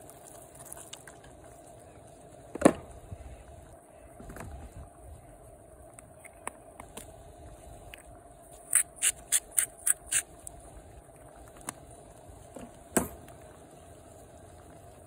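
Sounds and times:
food simmering in a skillet: 0.0s - 2.4s, 10.5s - 15.0s
camp stove burner hiss: 0.0s - 15.0s.

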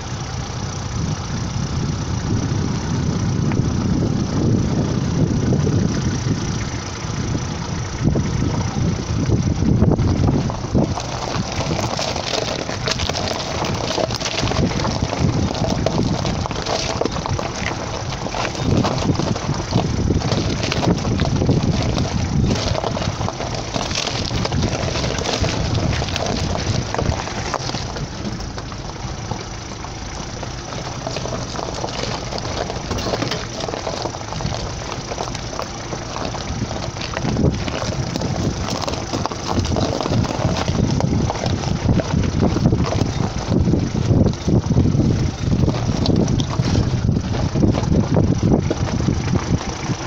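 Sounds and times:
car engine running low: 0.0s - 50.0s
tyres crunching on gravel: 0.0s - 50.0s
small stones clicking and rattling: 10.4s - 50.0s.

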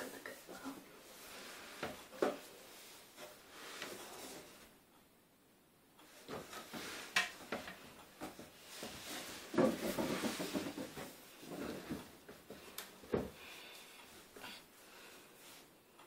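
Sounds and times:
clothing rubbing: 6.2s - 12.7s.

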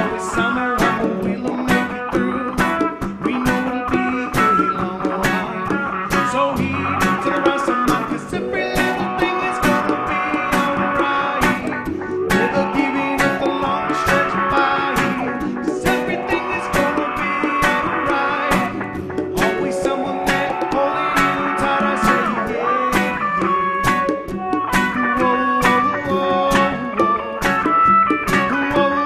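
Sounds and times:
rock band playing live: 0.0s - 29.0s.

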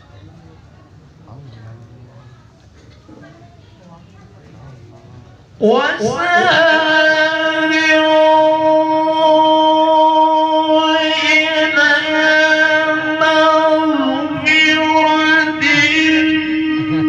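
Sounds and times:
man reciting in long melodic note: 5.6s - 17.0s.

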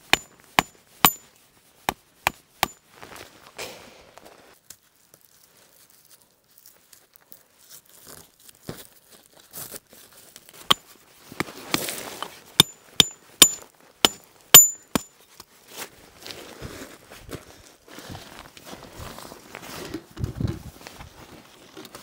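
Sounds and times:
metal tent stake hammered: 0.0s - 1.3s, 12.6s - 15.1s
rustle: 2.8s - 22.0s.

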